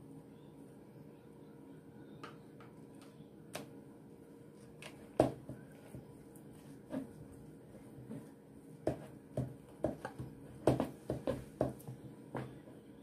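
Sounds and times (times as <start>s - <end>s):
fork mixing dough in bowl: 4.5s - 12.9s.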